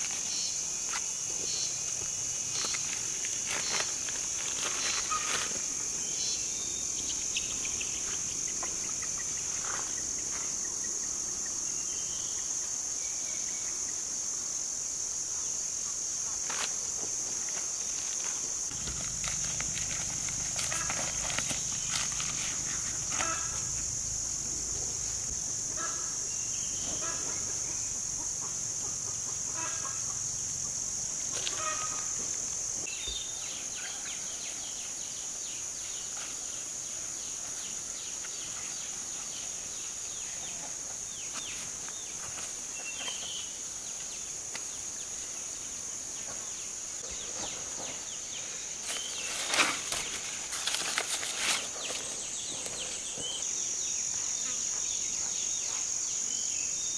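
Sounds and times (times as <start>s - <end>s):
insects chirring: 0.0s - 56.9s
hands rustling soil and basket: 2.5s - 5.8s, 17.5s - 23.6s, 48.8s - 52.2s.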